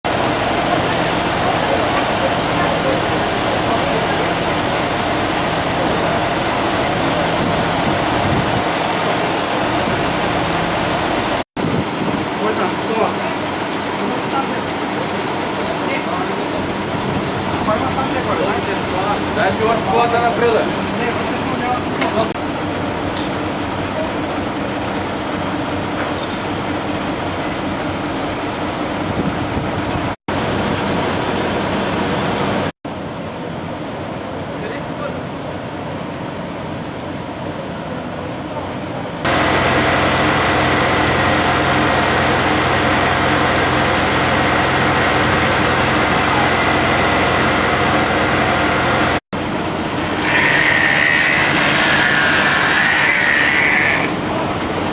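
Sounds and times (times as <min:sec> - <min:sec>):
fire engine pump droning: 0:00.1 - 0:30.1, 0:32.9 - 0:54.9
loud steady hiss: 0:49.4 - 0:54.9.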